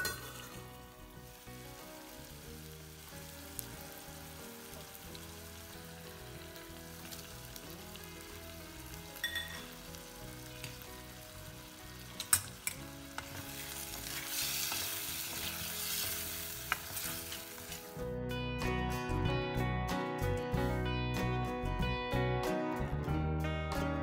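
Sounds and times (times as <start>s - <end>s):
food sizzling in a pan: 0.0s - 18.1s.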